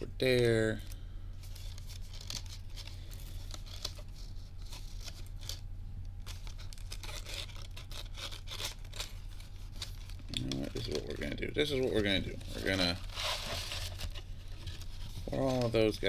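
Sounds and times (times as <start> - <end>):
foil packs crinkling: 0.3 - 16.0
hands digging through cardboard box: 6.2 - 16.0.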